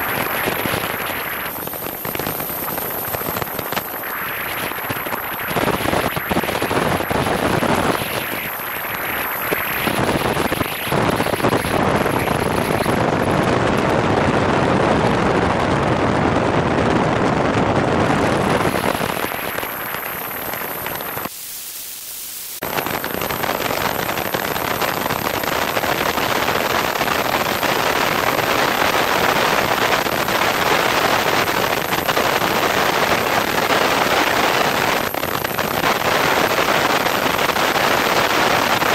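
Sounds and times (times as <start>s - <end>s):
rushing wind buffeting: 9.8s - 21.1s.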